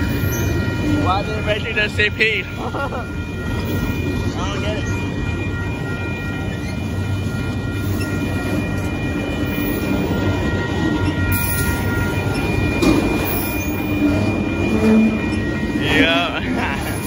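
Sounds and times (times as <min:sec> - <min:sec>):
steel wheels rumbling on rail: 0:00.0 - 0:17.0
thin high steady tones: 0:00.0 - 0:17.0
wheels clicking over rail joints: 0:06.2 - 0:15.8.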